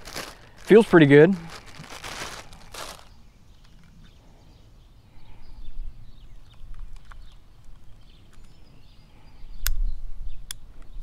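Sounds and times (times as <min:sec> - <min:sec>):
wind rumble on microphone: 0:09.3 - 0:11.0.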